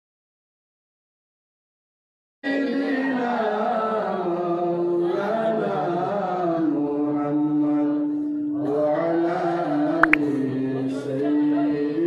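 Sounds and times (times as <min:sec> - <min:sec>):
man chanting into a microphone: 0:02.4 - 0:12.0.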